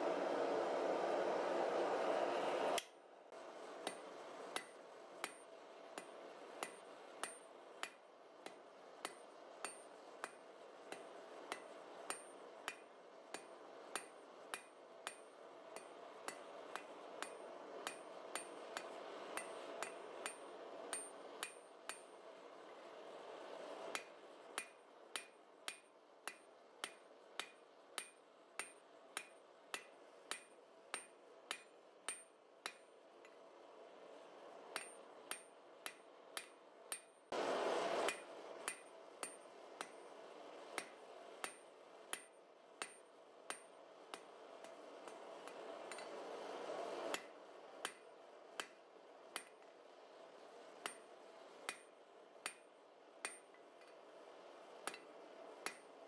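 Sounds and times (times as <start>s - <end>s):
hammer striking steel on anvil: 3.8s - 22.2s, 23.7s - 33.4s, 34.7s - 37.2s, 38.0s - 40.1s, 40.7s - 46.2s, 47.1s - 49.7s, 50.7s - 51.1s, 51.7s - 54.0s, 54.8s - 56.0s.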